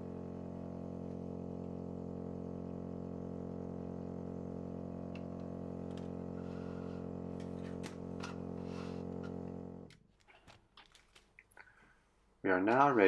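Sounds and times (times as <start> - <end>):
lab equipment humming: 0.0 - 9.9.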